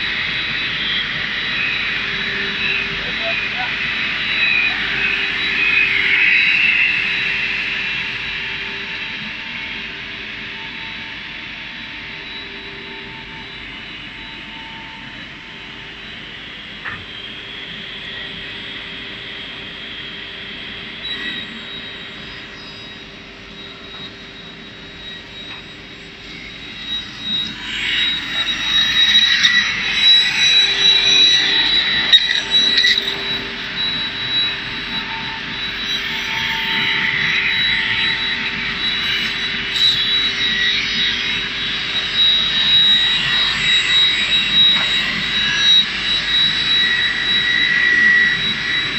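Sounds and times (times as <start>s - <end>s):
rip saw whining: 0.0s - 9.5s, 20.6s - 48.9s.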